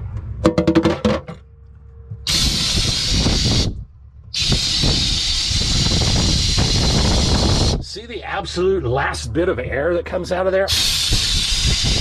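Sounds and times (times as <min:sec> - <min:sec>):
compressed air hissing from faucet: 0:02.3 - 0:03.8, 0:04.4 - 0:07.8, 0:10.7 - 0:12.0.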